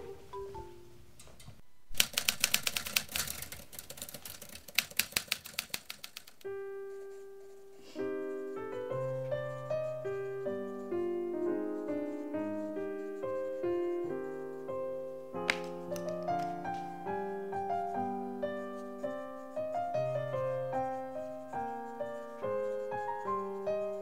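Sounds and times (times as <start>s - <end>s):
soft piano music: 0.0s - 1.1s, 6.4s - 24.0s
typewriter keys clattering: 2.0s - 6.5s.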